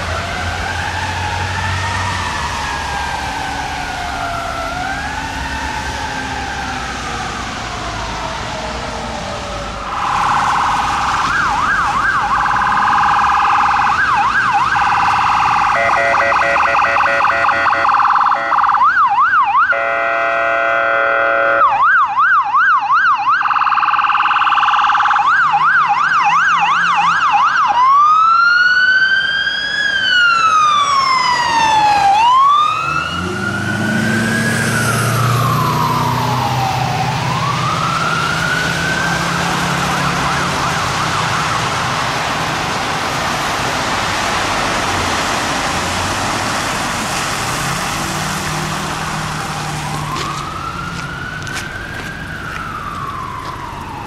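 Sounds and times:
ambulance siren: 0.0 - 54.0
engine and tyre noise: 0.0 - 54.0
buzzy horn blast: 19.7 - 21.6.

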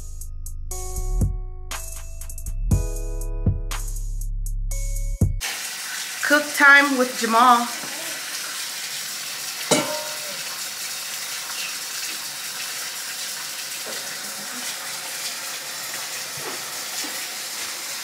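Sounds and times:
faucet running into metal sink: 5.4 - 18.0
metal bowl clanking: 9.7 - 10.4.

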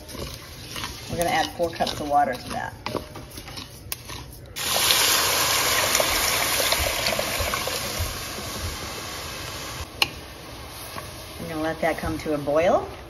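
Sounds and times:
water hissing on hot pot: 4.6 - 12.8.

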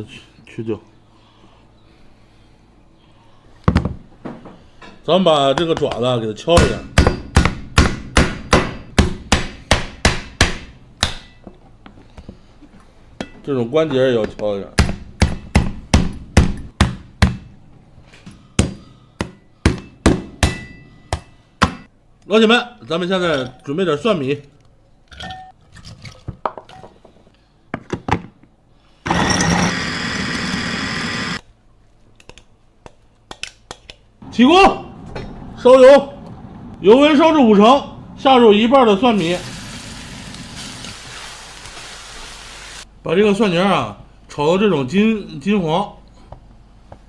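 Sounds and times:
food chopper motor whirring: 29.1 - 31.4.

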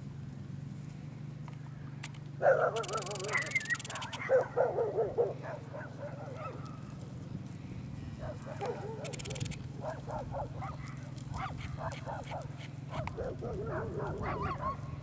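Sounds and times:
steady low hum: 0.0 - 15.0
loud wavering animal cries: 2.7 - 4.3.

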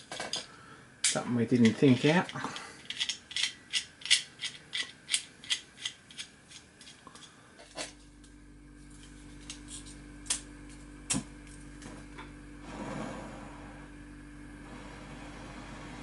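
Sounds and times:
low hum: 7.1 - 16.0.

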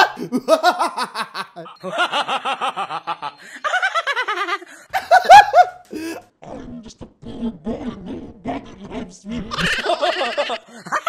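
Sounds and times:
man laughing loudly: 0.0 - 6.2, 9.5 - 11.0.

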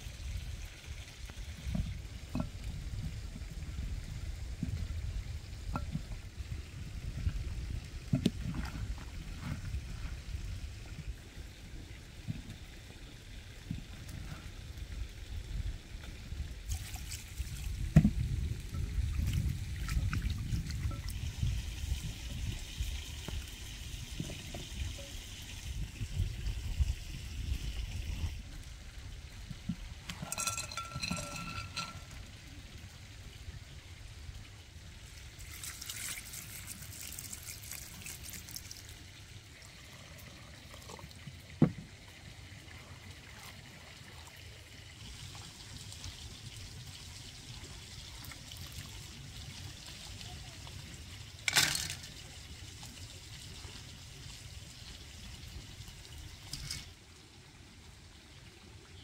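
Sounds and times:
liquid pouring: 16.4 - 28.4, 30.0 - 32.4, 35.2 - 41.7
ringing clink: 30.3 - 32.1.

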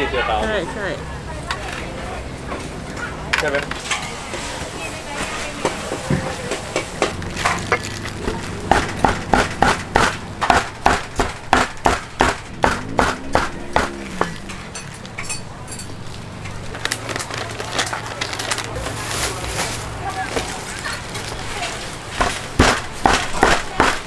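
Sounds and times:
cleaver chopping on wooden block: 8.7 - 14.4, 22.2 - 24.0.

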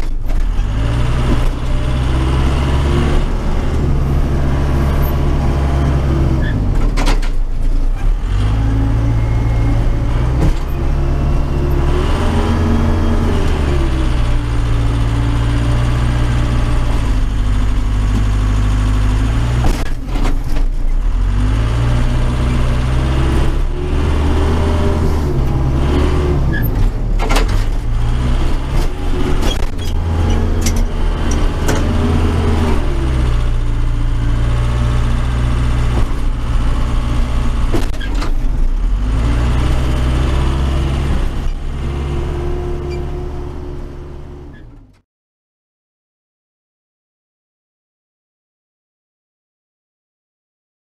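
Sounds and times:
diesel engine revving: 0.0 - 45.0
machine knocks and clanks: 26.7 - 29.8.

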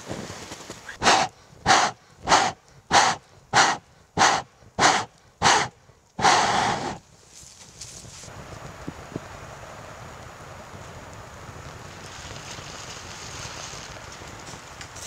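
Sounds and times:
person blowing hard: 1.0 - 7.0.

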